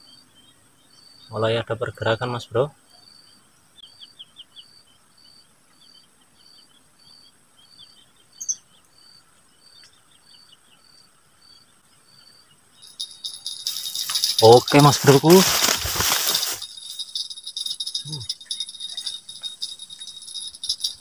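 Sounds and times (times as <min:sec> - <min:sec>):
twittering bird chirps: 0:00.0 - 0:10.9
high repeating pip: 0:12.8 - 0:21.0.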